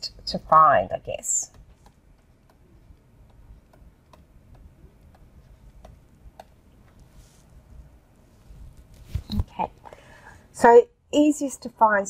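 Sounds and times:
stylus tapping on tablet: 1.3 - 7.1.

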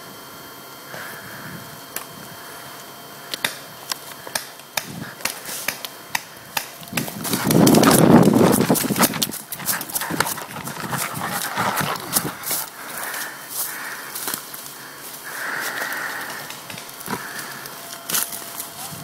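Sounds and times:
rustling and crunching through brush: 6.9 - 19.0
footsteps on dirt and leaves: 7.0 - 18.7.

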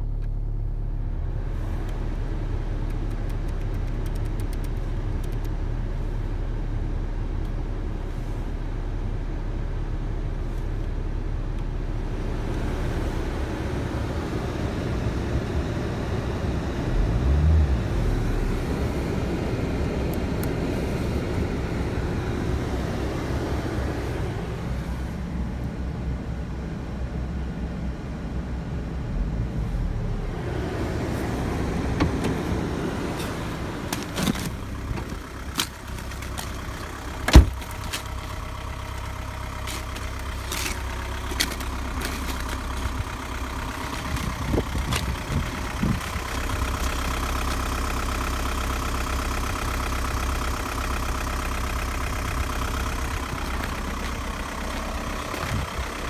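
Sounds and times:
diesel engine idling: 0.0 - 56.0
car door shutting: 31.8 - 36.6, 37.2 - 38.1.

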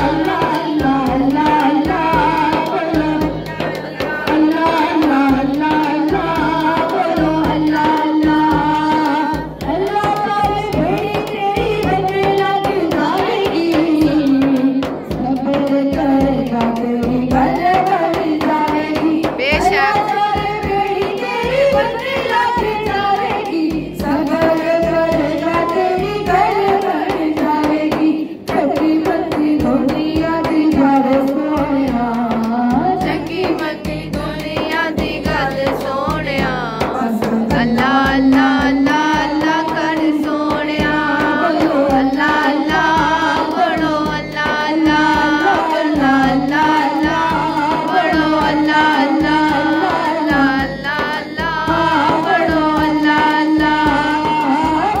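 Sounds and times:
person singing: 0.0 - 20.2
hand drum beat: 0.0 - 55.0.

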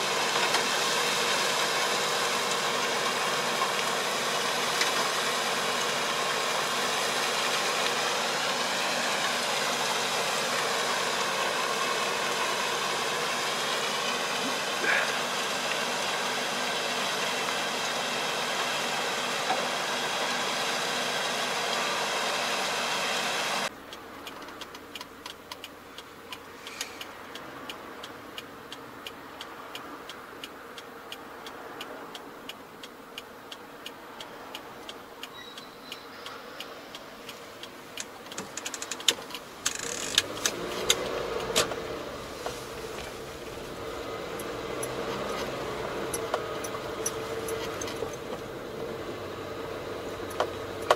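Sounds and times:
engine drone: 0.0 - 23.7, 38.3 - 50.9
car driving heard from inside: 2.3 - 18.0, 23.5 - 50.9
small clicks: 33.2 - 41.8.

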